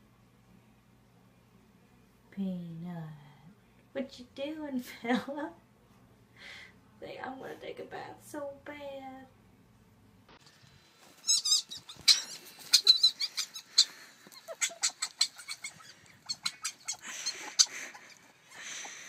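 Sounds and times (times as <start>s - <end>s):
young animal squeaking and chirping: 11.2s - 19.0s.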